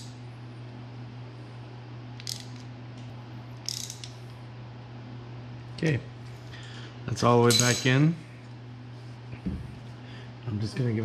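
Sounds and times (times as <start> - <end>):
steady low hum: 0.0 - 11.0
ratchet clicking: 2.2 - 2.6, 3.6 - 4.1.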